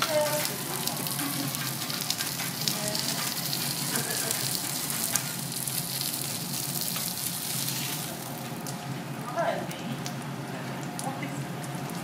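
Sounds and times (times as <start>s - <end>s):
food sizzling on a griddle: 0.0s - 9.2s.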